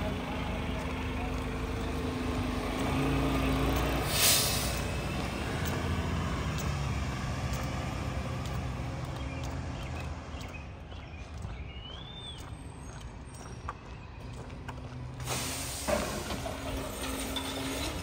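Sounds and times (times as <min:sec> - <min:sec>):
truck diesel engine: 0:00.0 - 0:18.0
air brake hiss: 0:04.0 - 0:04.9, 0:15.2 - 0:16.3.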